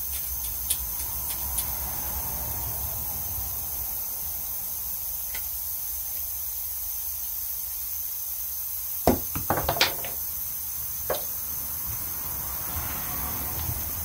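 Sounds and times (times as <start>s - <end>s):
sharp knocks and clicks of tools: 0.0s - 1.8s, 9.1s - 10.2s, 11.1s - 11.3s
steady hiss: 0.0s - 14.0s.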